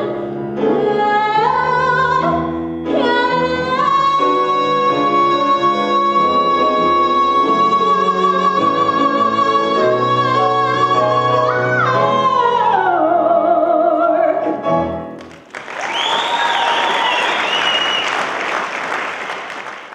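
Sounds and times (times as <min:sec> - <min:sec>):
audience applause: 0:15.2 - 0:19.9.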